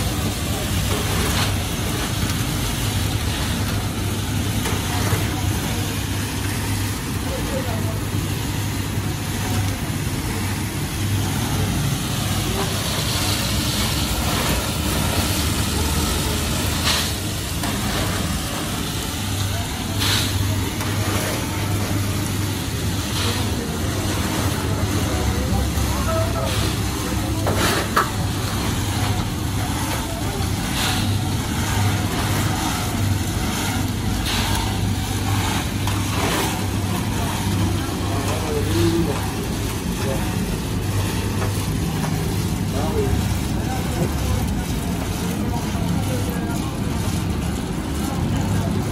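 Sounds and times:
peanuts pouring down metal chute: 0.0 - 48.9
roasting machine humming: 0.0 - 48.9.

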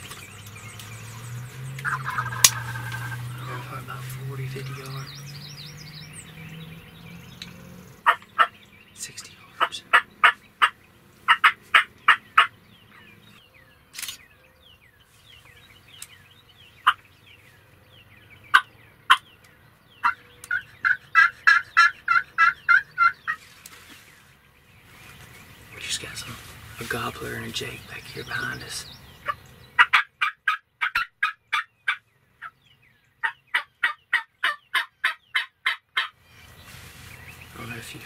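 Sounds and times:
turkey clucking and yelping: 1.8 - 3.9, 8.0 - 8.6, 9.5 - 12.6, 16.8 - 17.0, 20.0 - 23.4, 28.7 - 32.6, 33.2 - 36.2.

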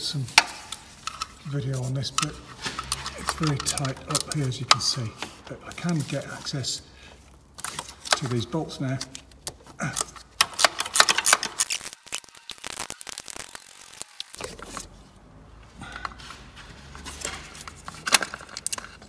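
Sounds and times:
metal bar clicking and scraping: 2.1 - 5.4.

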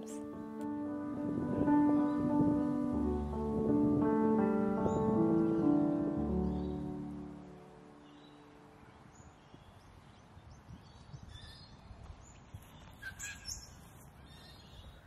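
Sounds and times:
small birds chirping: 4.8 - 15.0.

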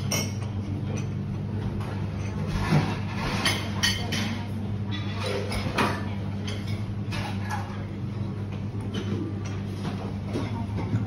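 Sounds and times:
tableware clinking: 0.0 - 7.8
steady low hum: 0.0 - 11.0.

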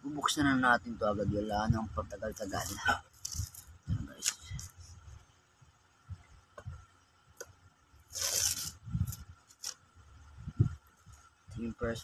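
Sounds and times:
packing tape ripping off box: 8.1 - 8.7.

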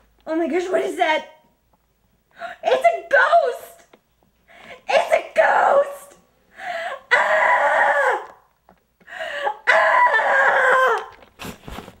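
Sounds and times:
woman screaming in fright: 7.0 - 8.4, 9.4 - 11.2.

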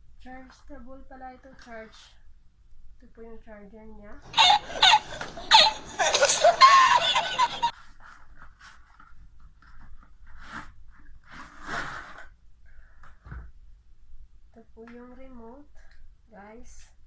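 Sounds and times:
man laughing hard: 4.3 - 7.7.

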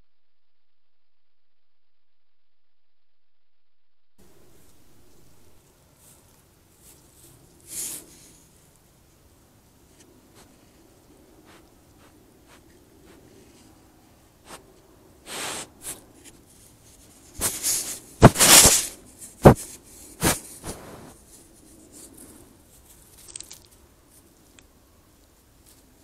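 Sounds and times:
deer breathy puffs: 15.3 - 16.0, 19.5 - 21.2.

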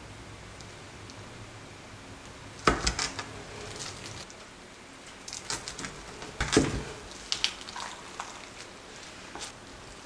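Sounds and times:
plastic wrap crackling: 2.6 - 4.4, 5.0 - 9.6.

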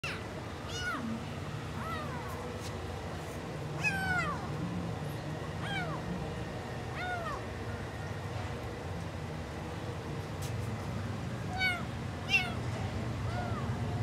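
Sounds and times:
kitten meowing: 0.0 - 1.1, 1.8 - 2.3, 3.8 - 4.5, 5.6 - 6.0, 6.9 - 7.4, 11.5 - 12.6, 13.3 - 13.7.

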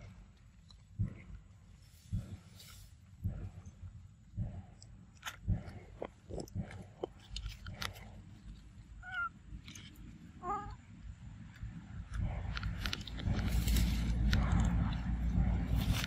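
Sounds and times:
monkeys biting into fruit: 5.2 - 10.2, 11.4 - 16.0.

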